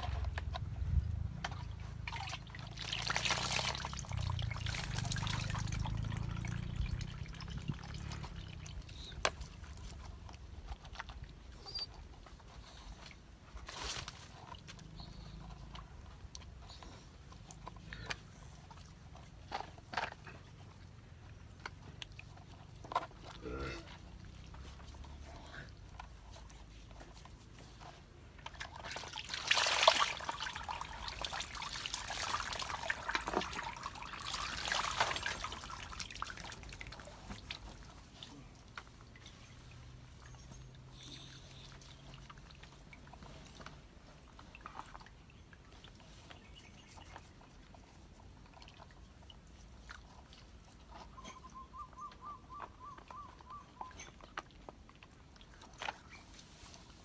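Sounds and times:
water pouring and splashing: 0:01.5 - 0:11.6, 0:28.4 - 0:50.8.

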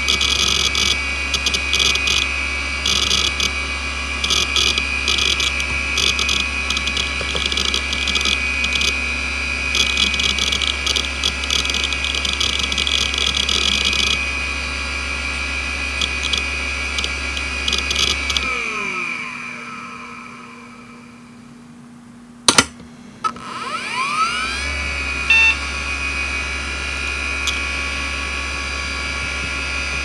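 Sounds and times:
hard drive head seek chatter: 0:00.0 - 0:03.6, 0:04.2 - 0:09.0, 0:09.7 - 0:14.3, 0:16.0 - 0:18.6, 0:25.3 - 0:25.6
hard drive spindle whine: 0:00.0 - 0:22.0, 0:23.2 - 0:30.0.

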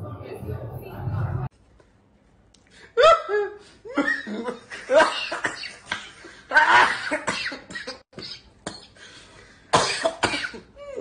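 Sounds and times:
man coughing: 0:04.2 - 0:09.0, 0:09.7 - 0:10.7.

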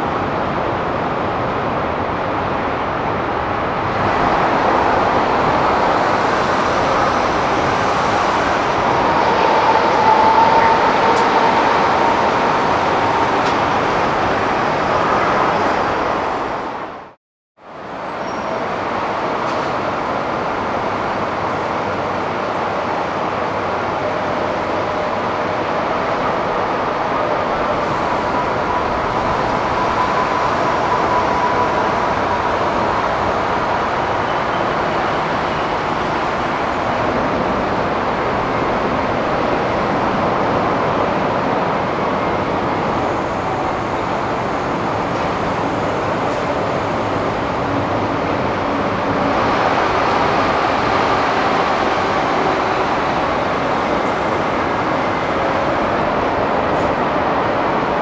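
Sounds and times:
jet aircraft noise: 0:03.7 - 0:16.1.

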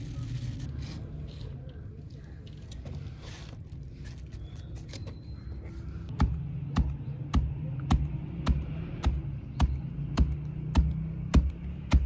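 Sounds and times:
stone pestle pounding in mortar: 0:06.1 - 0:12.0.

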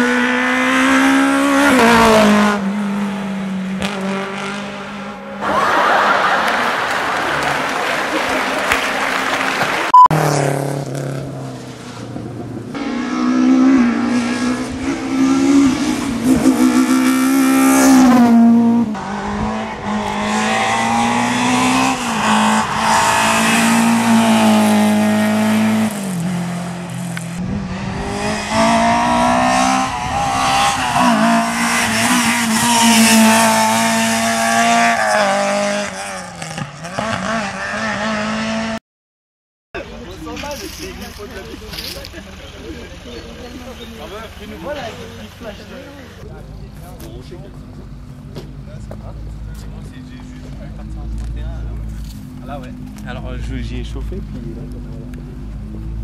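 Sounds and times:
rally car engines revving: 0:00.0 - 0:38.8, 0:40.1 - 0:56.0.

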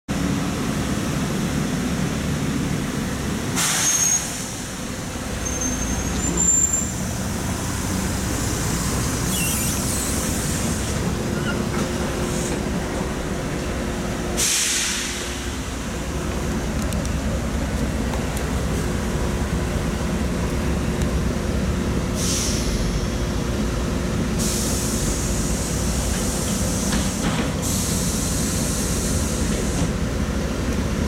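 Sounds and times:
bus diesel engine idling: 0:00.1 - 0:31.0
compressed air hiss: 0:03.6 - 0:04.6, 0:09.1 - 0:11.0, 0:14.4 - 0:15.5, 0:22.2 - 0:22.8, 0:24.4 - 0:29.9.

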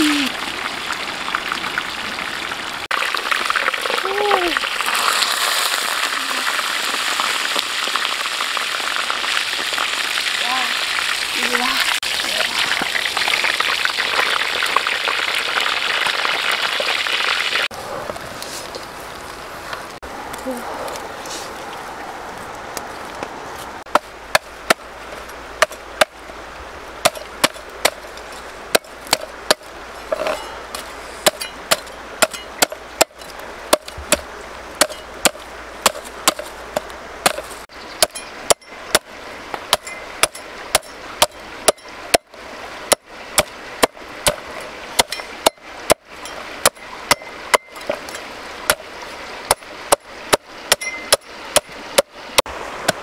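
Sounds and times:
cleaver chopping on wooden block: 0:31.2 - 0:39.1.

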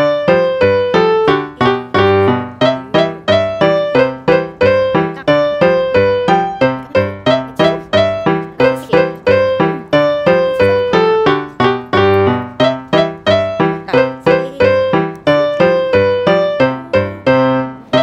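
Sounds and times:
piano melody: 0:00.0 - 0:18.0.

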